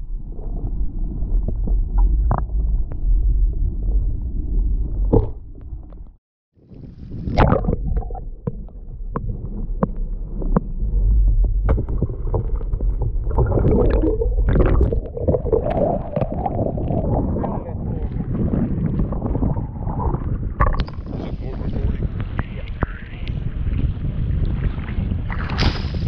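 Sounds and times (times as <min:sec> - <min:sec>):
muffled underwater rumble: 0:00.0 - 0:26.0
water sloshing and splashing: 0:06.7 - 0:21.4.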